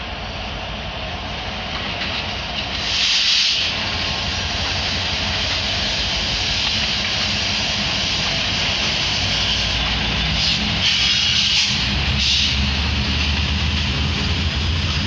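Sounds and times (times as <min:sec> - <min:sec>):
diesel locomotives rumbling: 0:00.0 - 0:15.0
loud hissing burst: 0:02.7 - 0:12.7.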